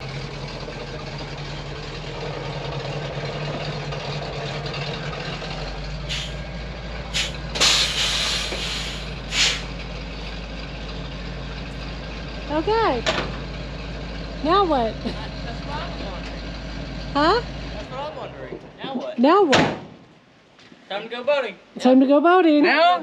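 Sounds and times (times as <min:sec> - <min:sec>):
truck engine running: 0:00.0 - 0:20.6
loud air hisses: 0:06.1 - 0:06.4, 0:07.1 - 0:09.8.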